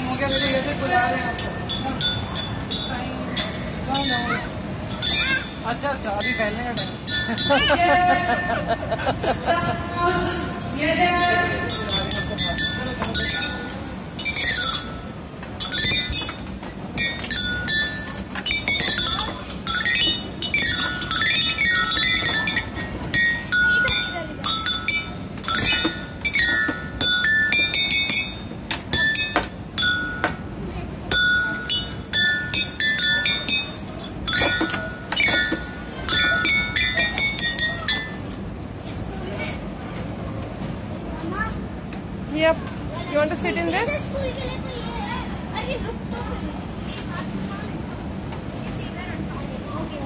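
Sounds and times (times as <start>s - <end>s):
xylophone runs: 11.7s - 30.5s, 31.1s - 38.4s.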